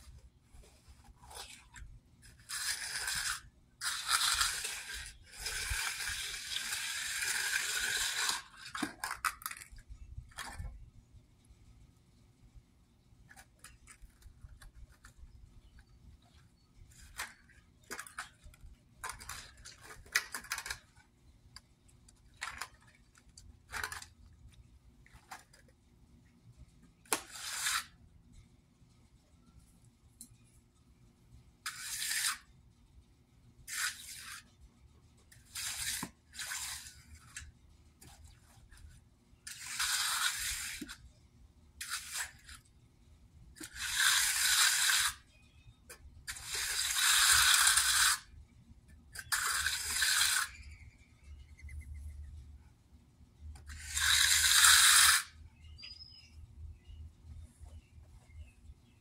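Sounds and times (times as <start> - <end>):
trowel stroking wet concrete: 1.2 - 9.6, 31.7 - 32.5, 33.7 - 34.5, 35.4 - 37.4, 39.5 - 41.0, 41.8 - 42.6, 43.6 - 45.2, 46.3 - 48.3, 49.2 - 50.7, 53.7 - 55.4.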